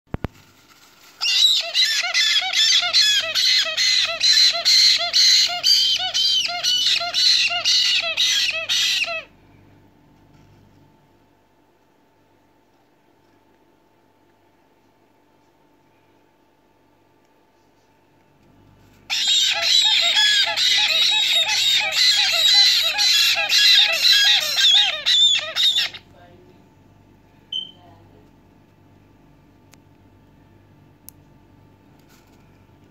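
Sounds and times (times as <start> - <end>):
parrot chicks squawking: 1.2 - 9.3, 19.1 - 26.1.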